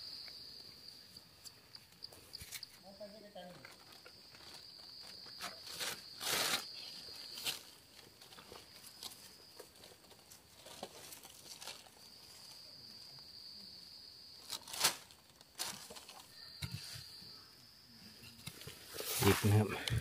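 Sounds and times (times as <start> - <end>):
scuffs and snaps in dry leaves: 5.6 - 9.2, 14.4 - 16.2
plastic bag rustling: 14.4 - 16.3
high-pitched insect drone: 16.2 - 18.4.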